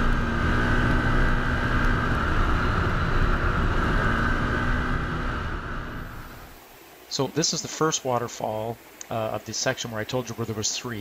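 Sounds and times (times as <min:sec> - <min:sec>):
vehicle engine running: 0:00.0 - 0:06.6
wind noise: 0:00.0 - 0:06.6.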